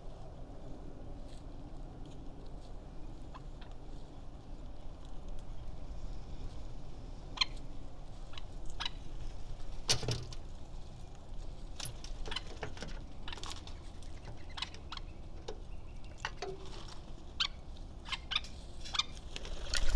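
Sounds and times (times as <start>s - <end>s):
parrots clicking and chirping: 11.8s - 19.9s.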